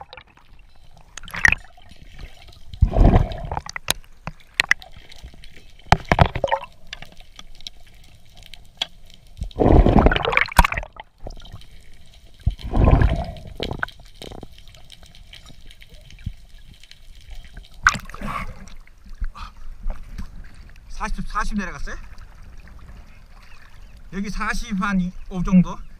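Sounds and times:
rushes of water noise: 0:00.0 - 0:08.6, 0:09.2 - 0:25.9
underwater low hiss: 0:01.9 - 0:03.8, 0:11.8 - 0:15.4.

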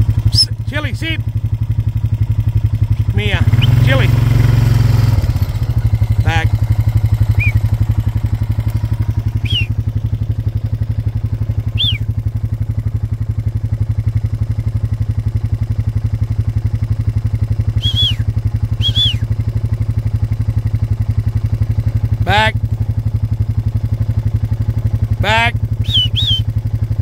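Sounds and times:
vehicle engine droning: 0:00.0 - 0:27.0
high whistle-like chirps: 0:00.3 - 0:00.5, 0:03.6 - 0:03.9, 0:07.3 - 0:07.7, 0:09.4 - 0:09.8, 0:11.7 - 0:12.1, 0:17.8 - 0:19.3, 0:25.8 - 0:26.5.

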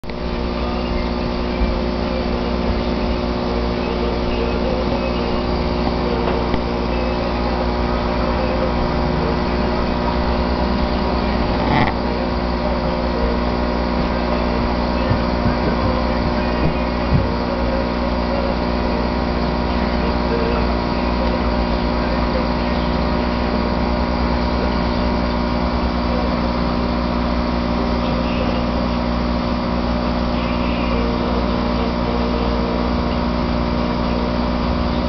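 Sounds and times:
aquarium equipment humming: 0:00.0 - 0:35.0.

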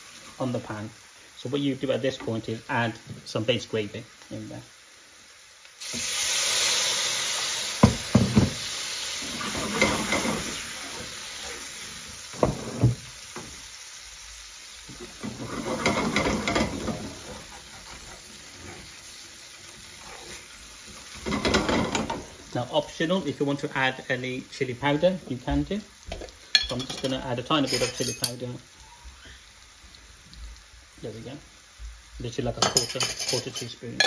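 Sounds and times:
gravy sizzling in hot pan: 0:00.0 - 0:34.0
spoon knocking on pan: 0:07.8 - 0:08.6
metal spoon scraping pan: 0:09.3 - 0:10.7, 0:15.2 - 0:18.9, 0:26.6 - 0:28.4.

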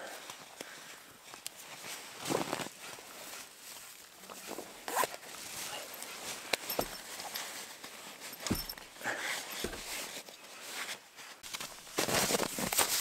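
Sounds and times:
nylon fabric rustling: 0:04.5 - 0:13.0
light clicks and knocks: 0:06.5 - 0:07.4, 0:08.3 - 0:08.9.

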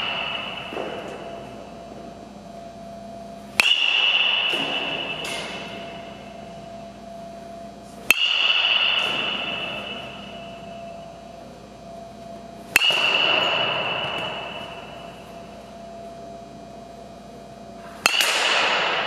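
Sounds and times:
baseball bat cracking ball: 0:00.0 - 0:01.6, 0:03.5 - 0:06.5, 0:08.0 - 0:10.7, 0:12.7 - 0:15.4, 0:17.8 - 0:19.0.

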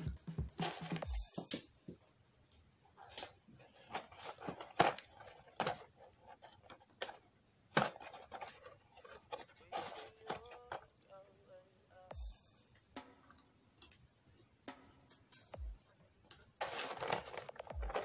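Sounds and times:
paper packaging rustling: 0:03.0 - 0:11.0, 0:16.3 - 0:18.0.

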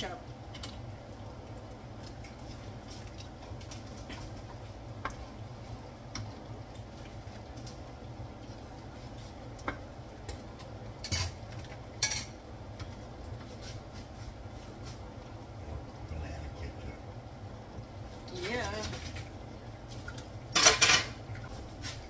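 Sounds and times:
wooden spoon stirring in pan: 0:00.0 - 0:15.6, 0:17.6 - 0:20.4
steady low hum: 0:00.0 - 0:22.0.

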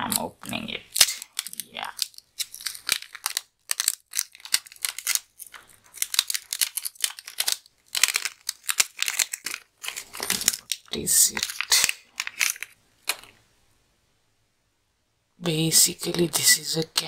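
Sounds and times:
plastic bag crinkling: 0:00.9 - 0:13.4.

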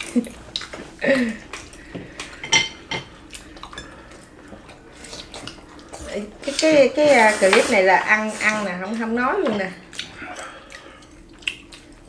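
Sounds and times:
eating sounds: 0:00.0 - 0:02.4, 0:03.2 - 0:07.3, 0:09.8 - 0:12.0.

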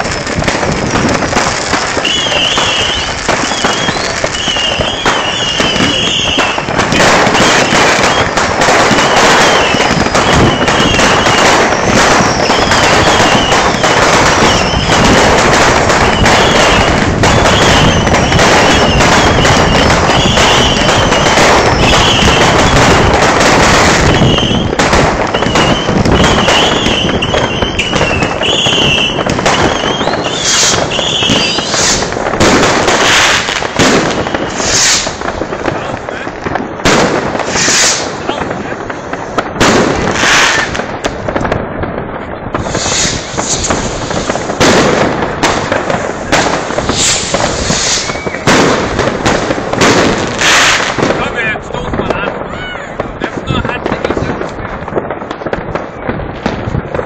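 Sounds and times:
fireworks crackling barrage: 0:00.0 - 0:57.0
sharp firework bangs: 0:00.0 - 0:57.0
shrill rocket whistles: 0:01.9 - 0:23.1, 0:23.8 - 0:32.1, 0:33.0 - 0:35.2, 0:37.4 - 0:38.2, 0:40.2 - 0:40.8, 0:42.6 - 0:44.5, 0:46.8 - 0:48.6.

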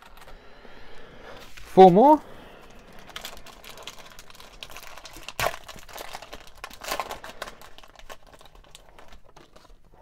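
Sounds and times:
foil wrapper crinkling and tearing: 0:02.6 - 0:10.0.

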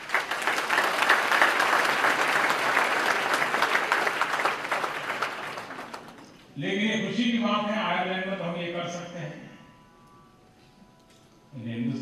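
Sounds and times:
audience clapping: 0:00.0 - 0:06.6.

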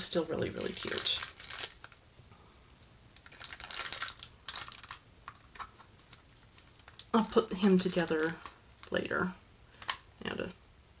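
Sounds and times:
plastic items clicking and rustling: 0:00.6 - 0:02.0, 0:03.2 - 0:09.0.

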